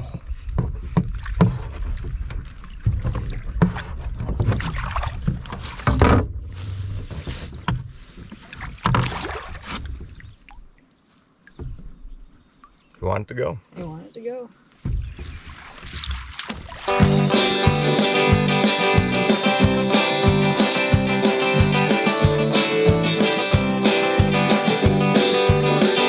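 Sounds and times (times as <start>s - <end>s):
water splashing: 0.0s - 13.1s, 14.8s - 26.0s
knocks against canoe hull: 0.5s - 10.2s, 14.8s - 16.8s.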